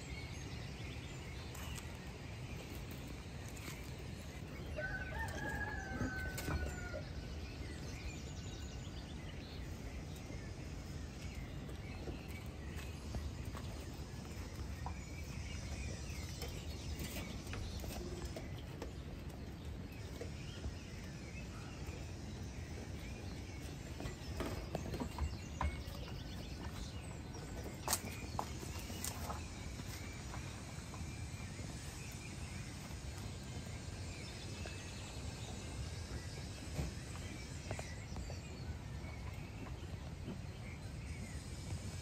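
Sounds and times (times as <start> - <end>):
outdoor background rumble: 0.0 - 42.0
rooster crowing: 4.8 - 7.1.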